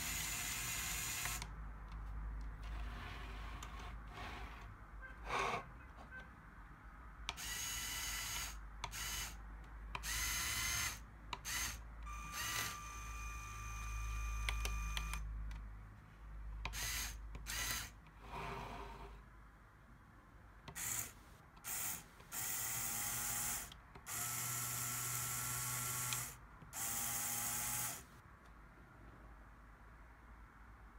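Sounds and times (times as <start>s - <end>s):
electric motors whirring through gears: 0.0s - 1.5s, 10.0s - 15.2s, 16.7s - 17.9s, 20.7s - 28.0s.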